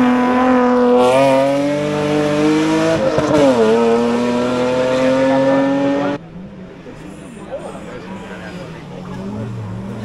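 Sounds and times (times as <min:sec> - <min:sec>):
rally car engine accelerating: 0:00.0 - 0:10.0.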